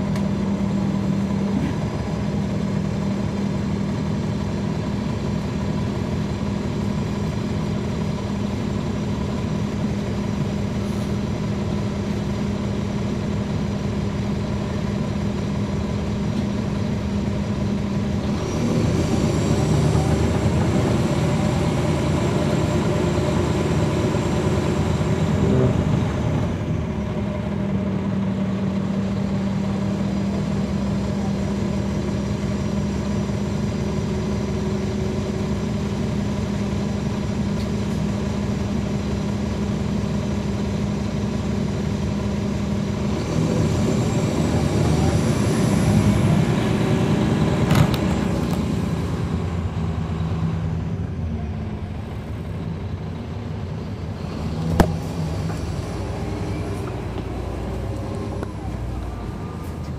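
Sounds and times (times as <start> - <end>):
bus diesel engine running: 0.0 - 59.9
single knock: 54.7 - 55.0.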